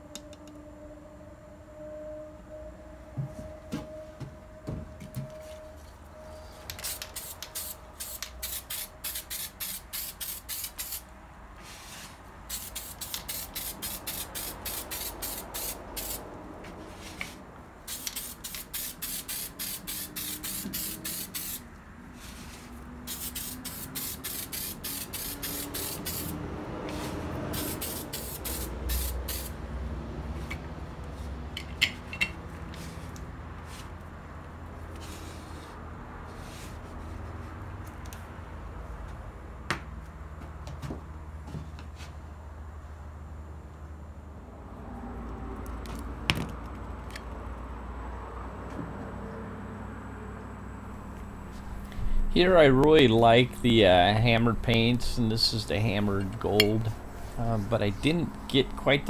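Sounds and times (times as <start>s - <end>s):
spray-paint can hissing bursts: 6.8s - 11.1s, 12.5s - 16.3s, 17.8s - 21.6s, 23.0s - 29.6s.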